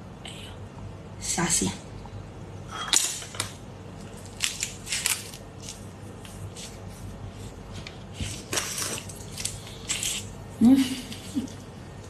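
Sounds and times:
prawn shell crackling and squishing: 0:03.9 - 0:07.1, 0:07.7 - 0:10.4.

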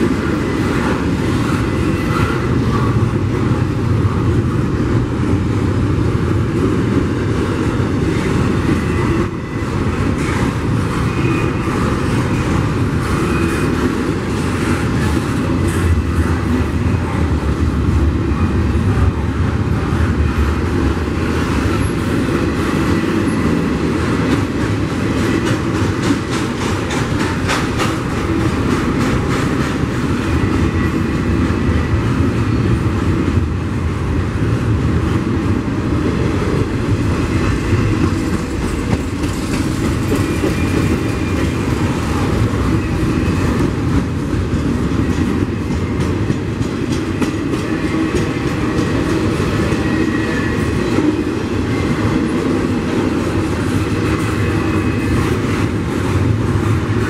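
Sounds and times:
train wheels rumbling on rails: 0:00.0 - 0:57.0
wheels clicking over rail joints: 0:21.4 - 0:30.6, 0:36.9 - 0:51.3.

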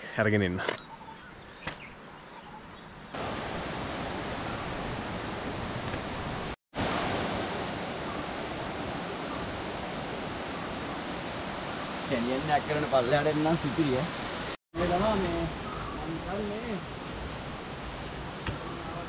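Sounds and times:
waterfall rushing: 0:03.2 - 0:16.6.

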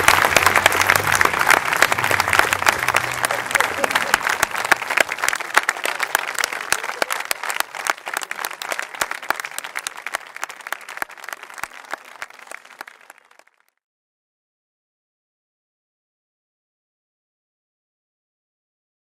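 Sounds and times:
audience applauding: 0:00.0 - 0:13.7.

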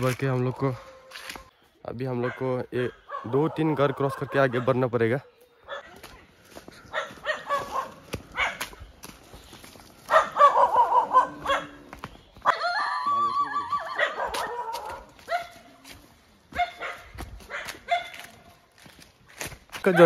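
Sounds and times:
dog barking: 0:02.2 - 0:06.0, 0:06.9 - 0:08.8, 0:10.1 - 0:11.9, 0:13.7 - 0:15.7, 0:16.5 - 0:18.3
dog howling: 0:10.1 - 0:11.9, 0:12.5 - 0:15.1.

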